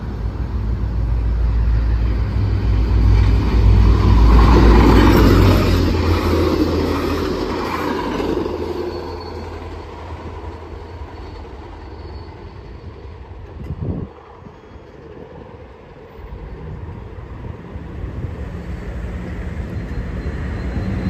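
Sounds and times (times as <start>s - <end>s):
distant train approaching: 0.0s - 21.0s
train wheels rumbling on rail: 0.0s - 21.0s.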